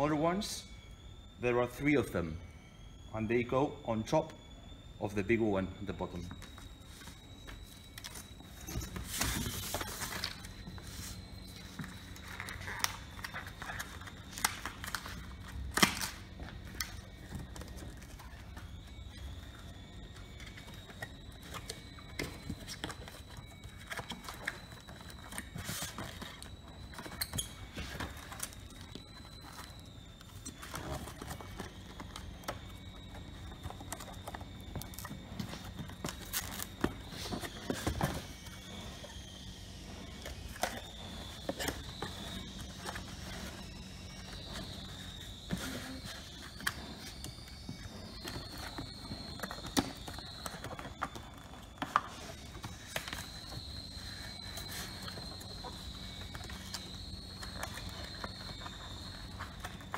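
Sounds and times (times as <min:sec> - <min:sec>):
cardboard rustling and scraping: 0:06.9 - 0:15.0.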